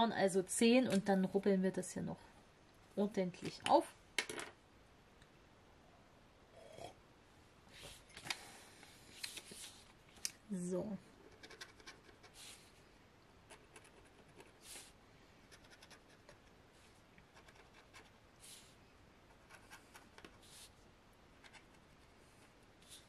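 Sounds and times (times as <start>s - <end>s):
scratching off coating on paper: 11.2s - 12.7s, 13.5s - 16.5s, 17.3s - 20.8s, 21.4s - 23.0s.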